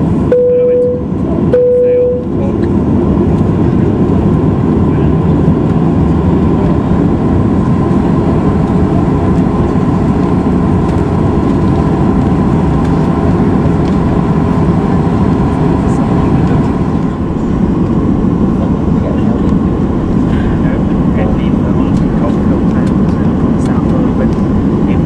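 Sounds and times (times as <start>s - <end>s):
jet aircraft rumble: 0.0s - 25.0s
faint steady tone: 0.3s - 2.4s.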